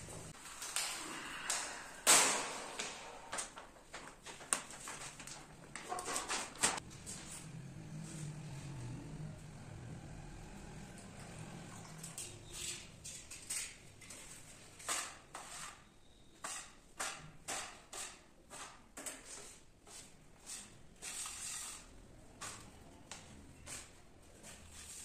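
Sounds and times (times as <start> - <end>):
putty knife scraping wet grout: 14.8 - 18.8, 20.5 - 21.9.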